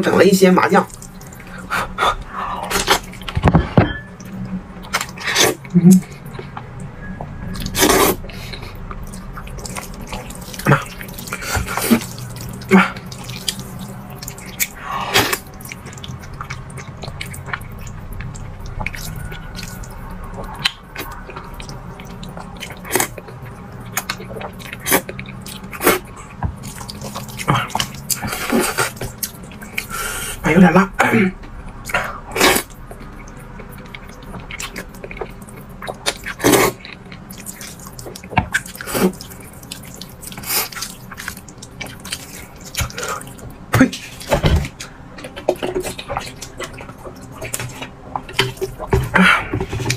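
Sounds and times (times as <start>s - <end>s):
slurping and chewing noodles: 0.8s - 3.4s, 7.5s - 30.4s, 31.5s - 49.9s
person slurping noodles: 7.6s - 8.7s, 36.2s - 36.8s.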